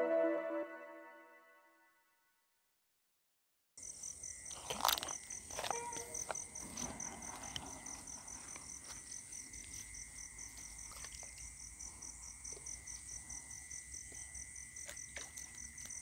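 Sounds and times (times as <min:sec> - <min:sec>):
crickets trilling: 0:03.8 - 0:16.0
insect drone: 0:03.8 - 0:16.0.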